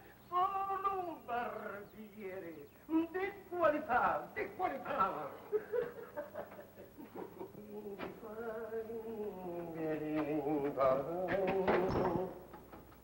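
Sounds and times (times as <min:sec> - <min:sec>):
man humming: 0:07.5 - 0:12.4.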